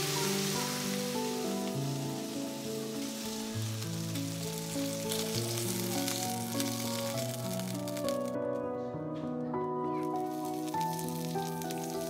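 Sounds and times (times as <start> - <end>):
fat sizzling in a frying pan: 0.0 - 8.4, 10.0 - 12.0
gentle background music: 0.0 - 12.0.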